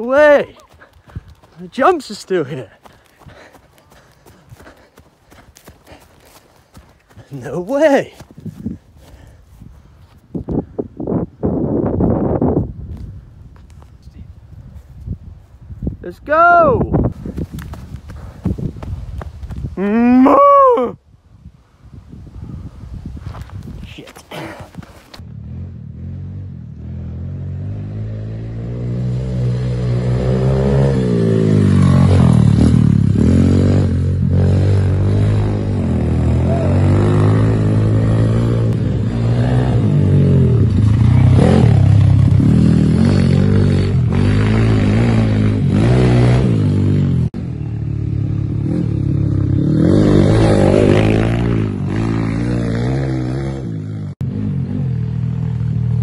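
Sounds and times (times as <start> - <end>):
dirt bike engine revving: 25.2 - 56.0.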